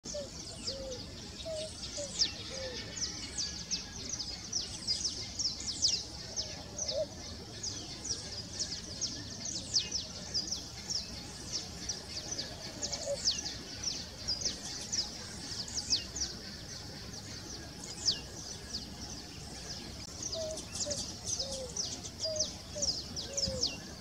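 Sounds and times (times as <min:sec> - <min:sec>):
faint low pigeon coos: 0:12.2 - 0:13.4, 0:20.2 - 0:23.8.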